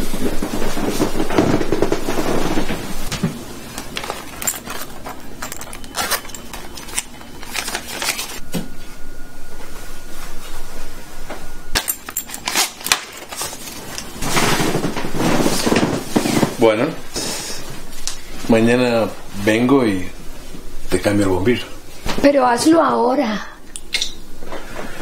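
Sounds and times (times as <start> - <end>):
rummaging through a handbag: 3.3 - 8.4, 11.8 - 16.6.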